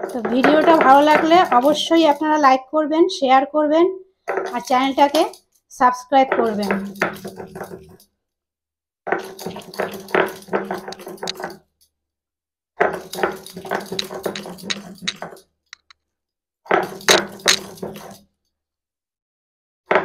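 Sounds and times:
stone roller grinding on stone slab: 0.0s - 2.1s, 9.1s - 11.5s, 12.8s - 15.9s, 16.7s - 18.2s.

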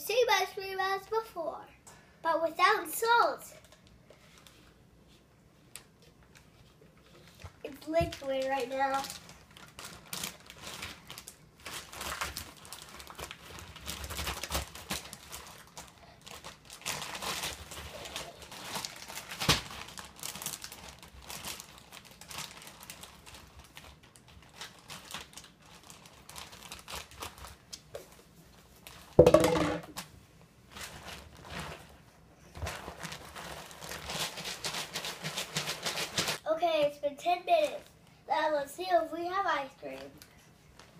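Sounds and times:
plastic bags crinkling: 8.0s - 27.7s, 30.7s - 32.0s, 32.6s - 36.4s
brief loud knock: 29.2s - 29.9s.

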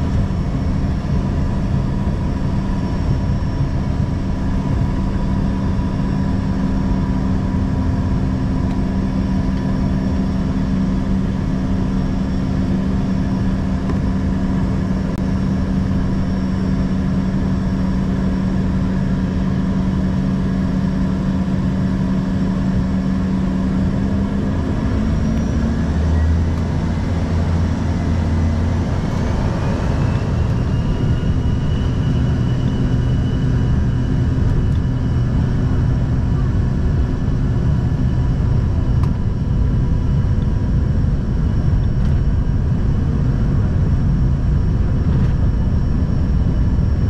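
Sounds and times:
jet engine rumble in cabin: 0.0s - 47.0s
jet engines spooling up: 23.1s - 36.7s.

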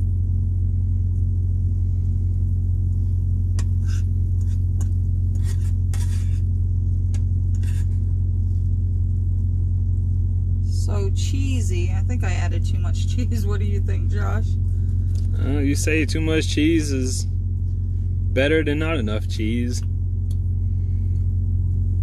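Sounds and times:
utensil scraping skillet and plate: 3.6s - 6.5s
truck idling rumble: 8.0s - 22.0s.

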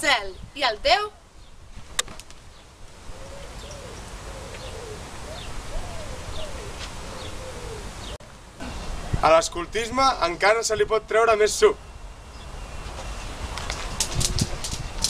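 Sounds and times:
outdoor background hiss: 0.0s - 15.0s
low cooing bird calls: 3.0s - 8.9s.

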